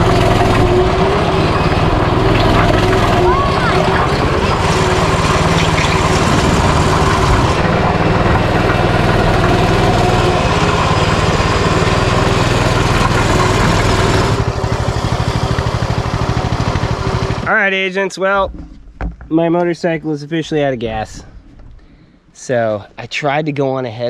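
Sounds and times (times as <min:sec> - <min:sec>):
dirt bike engine running: 0:00.0 - 0:17.8.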